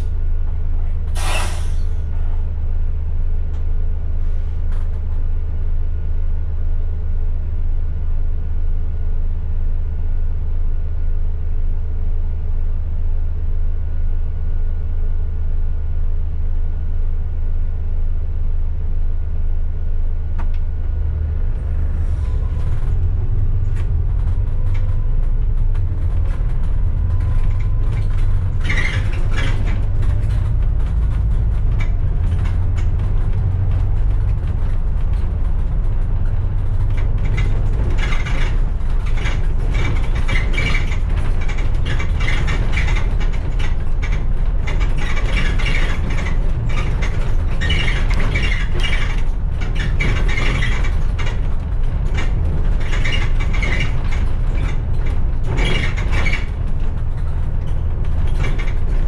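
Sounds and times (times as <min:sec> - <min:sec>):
bus engine and road rumble: 0:00.0 - 0:59.0
loose fittings rattling: 0:23.9 - 0:59.0.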